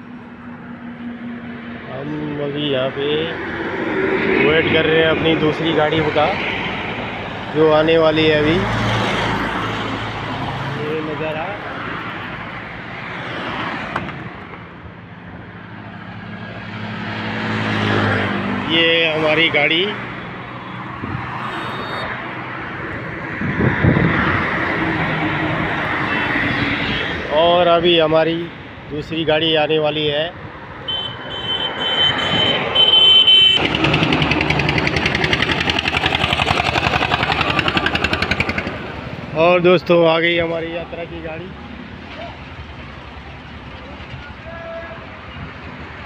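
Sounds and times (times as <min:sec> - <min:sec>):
road traffic passing: 0:00.0 - 0:46.0
approaching vehicle engine hum: 0:32.2 - 0:45.9.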